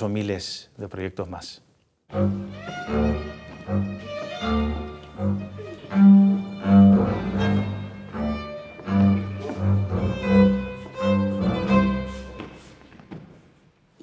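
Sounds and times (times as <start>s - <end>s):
double bass low notes: 2.1s - 12.4s
violin melody: 2.1s - 13.0s.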